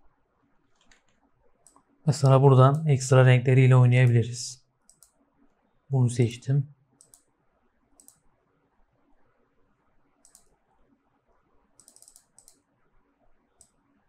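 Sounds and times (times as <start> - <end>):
computer mouse and keyboard clicks: 0.7 - 1.9, 4.8 - 5.2, 7.0 - 7.3, 8.0 - 8.3, 10.2 - 10.6, 11.7 - 12.7.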